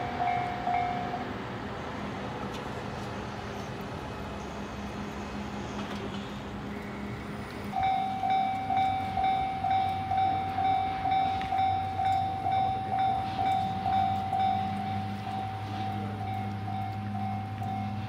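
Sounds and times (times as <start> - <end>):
low street noise: 0.0 - 18.0
level crossing alarm dinging: 7.8 - 18.0.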